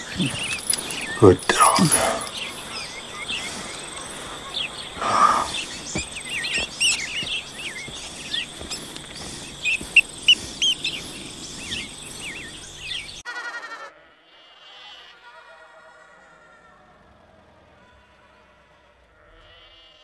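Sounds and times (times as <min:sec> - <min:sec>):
high insect drone: 0:00.0 - 0:13.2
songbirds chirping: 0:00.0 - 0:13.2.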